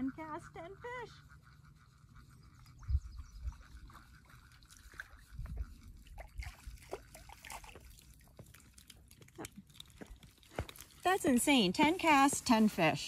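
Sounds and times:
small water splashes and drips: 0:03.9 - 0:11.1.

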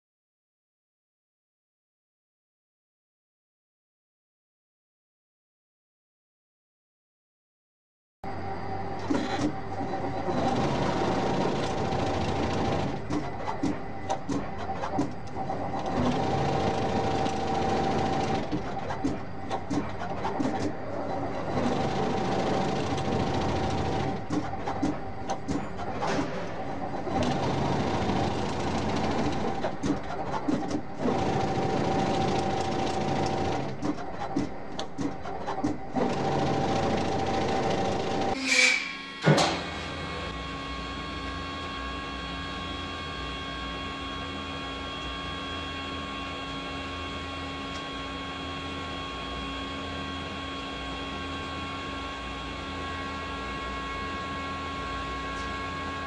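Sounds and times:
machine hum: 0:08.2 - 0:56.0
winding machine clattering: 0:09.2 - 0:38.4.

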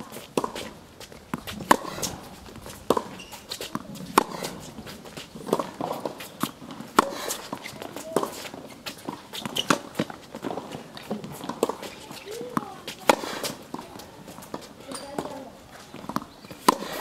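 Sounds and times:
shoes scuffing on court: 0:00.0 - 0:17.0
tennis ball popping off racket: 0:00.4 - 0:13.8, 0:16.0 - 0:17.0
ball bouncing on hard court: 0:01.3 - 0:08.4.

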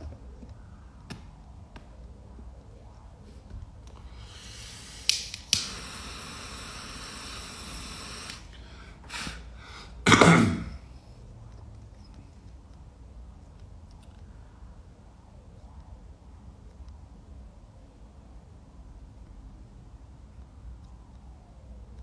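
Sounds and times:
rush of air: 0:00.0 - 0:10.8
torch flame hissing: 0:02.8 - 0:10.8
torch lighter clicking: 0:04.4 - 0:08.6.

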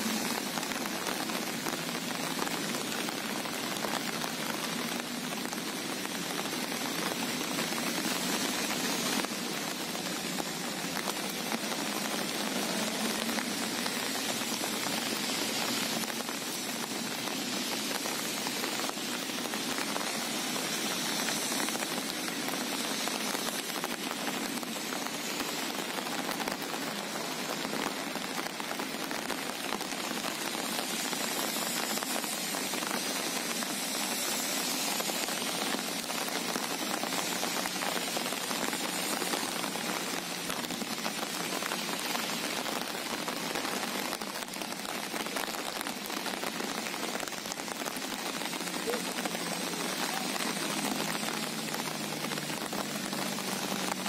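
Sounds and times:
rain falling on sea water: 0:00.0 - 0:54.0.

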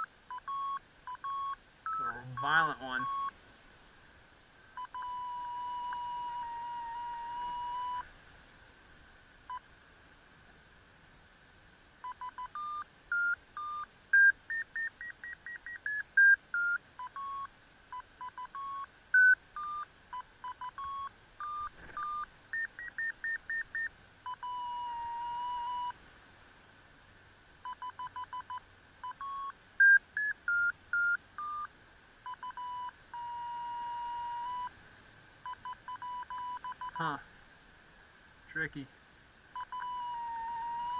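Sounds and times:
short electronic beeps: 0:00.0 - 0:03.3, 0:04.8 - 0:08.1, 0:12.0 - 0:26.0, 0:27.6 - 0:31.7, 0:32.3 - 0:34.7, 0:35.5 - 0:37.1, 0:39.6 - 0:40.9.

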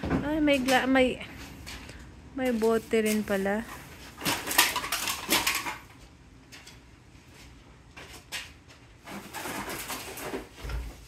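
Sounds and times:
bags of cans and bottles rustling: 0:02.5 - 0:05.9, 0:09.0 - 0:11.0.

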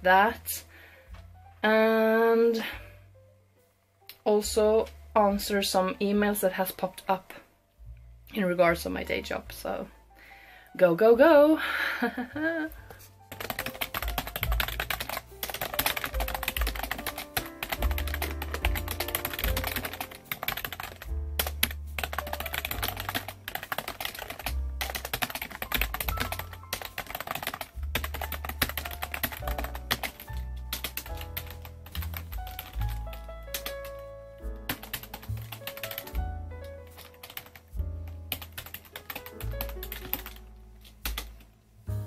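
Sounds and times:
background music: 0:00.0 - 0:42.0
fast keyboard typing: 0:13.3 - 0:40.4, 0:41.0 - 0:41.4.

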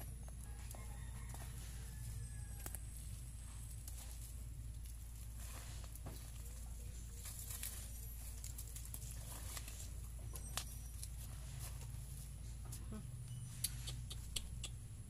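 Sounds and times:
blade scraping dry soil: 0:03.4 - 0:12.1.

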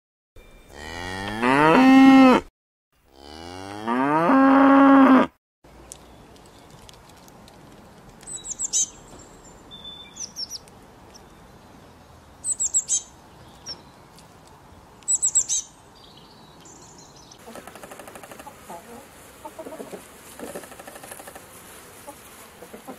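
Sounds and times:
cow mooing: 0:00.7 - 0:02.5, 0:03.1 - 0:05.3
small bird chirping: 0:08.2 - 0:14.2, 0:15.0 - 0:18.8.

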